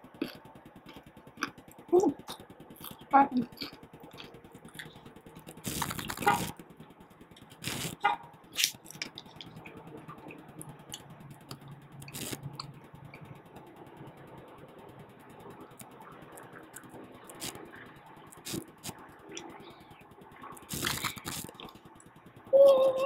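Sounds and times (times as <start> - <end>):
wet chewing and smacking: 0.2 - 6.6, 8.6 - 13.2, 20.4 - 21.8.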